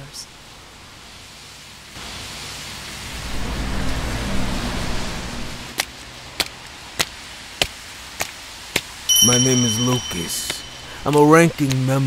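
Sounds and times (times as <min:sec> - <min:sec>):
steady rain: 0:00.0 - 0:09.1, 0:11.0 - 0:12.0
footsteps on wet pavement: 0:05.8 - 0:09.0.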